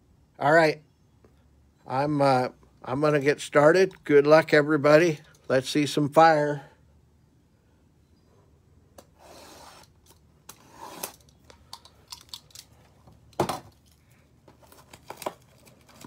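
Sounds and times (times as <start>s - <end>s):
plastic wrap crinkling and tearing: 14.6s - 16.0s.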